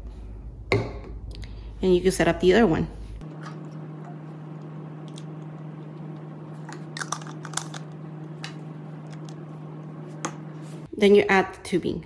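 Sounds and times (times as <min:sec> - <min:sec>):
low hum: 0:03.2 - 0:10.9.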